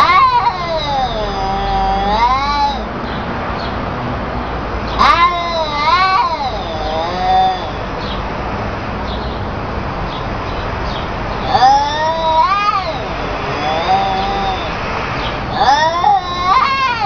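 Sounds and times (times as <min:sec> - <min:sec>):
cats yowling: 0:00.0 - 0:02.9, 0:04.9 - 0:08.2, 0:11.3 - 0:17.0.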